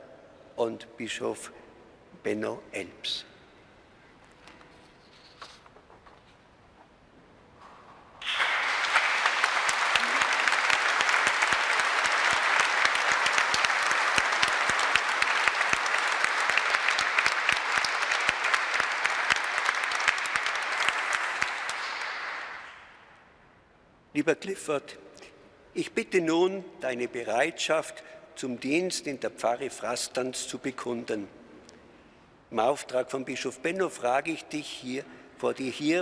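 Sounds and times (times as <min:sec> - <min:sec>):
congregation applauding: 0:08.2 - 0:22.9.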